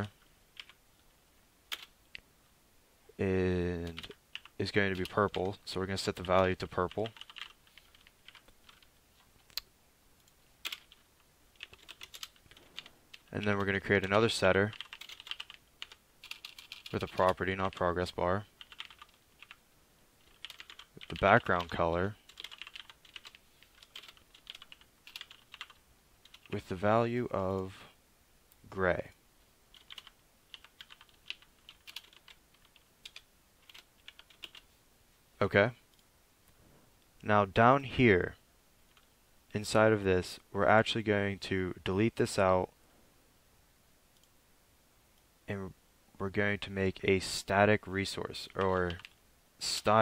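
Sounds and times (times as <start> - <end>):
keyboard typing: 0.6 - 0.8, 1.7 - 1.9, 3.8 - 9.6, 10.2 - 11.0, 11.6 - 17.8, 18.6 - 19.6, 20.2 - 26.6, 29.7 - 34.6, 48.5 - 49.2.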